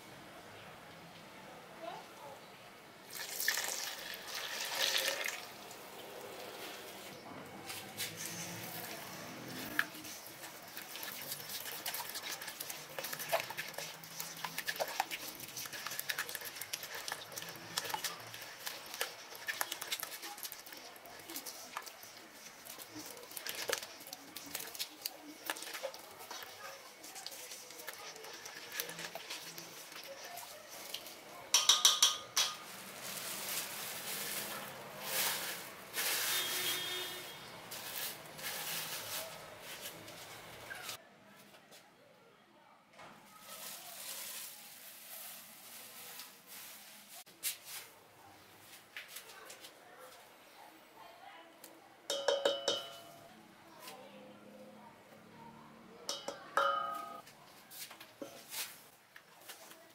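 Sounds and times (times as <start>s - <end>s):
spatula stirring dough in bowl: 6.6s - 41.0s, 56.1s - 59.8s
plastic wrap crinkling: 8.0s - 31.2s, 32.4s - 41.0s, 43.3s - 47.6s
spatula tapping metal bowl: 31.5s - 32.7s, 52.1s - 53.2s, 56.1s - 57.2s.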